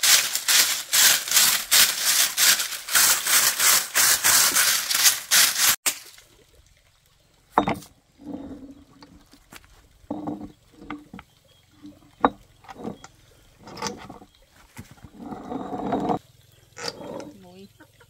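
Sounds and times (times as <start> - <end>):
broom sweeping: 0.0 - 5.8.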